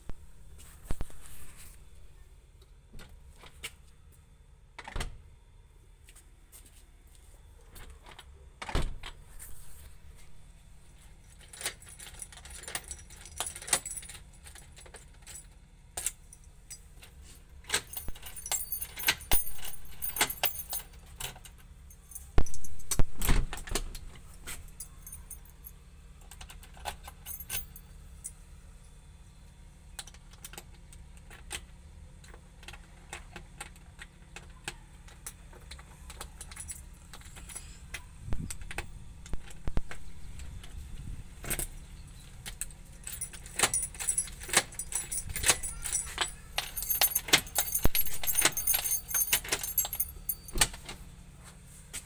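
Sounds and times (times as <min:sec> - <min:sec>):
keys jangling: 0:11.0 - 0:28.4, 0:35.1 - 0:40.8, 0:41.4 - 0:51.0
metallic lock clicks and knocks: 0:17.7 - 0:21.6, 0:22.2 - 0:25.4, 0:30.0 - 0:40.8, 0:41.4 - 0:51.0.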